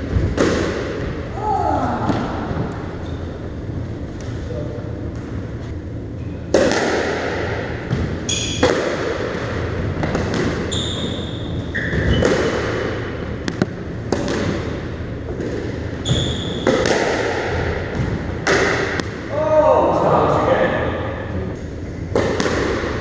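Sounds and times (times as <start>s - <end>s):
squash balls hitting walls: 0.0s - 2.9s, 6.5s - 19.5s, 22.0s - 23.0s
shoes squeaking on floor: 10.6s - 12.3s, 16.0s - 16.6s.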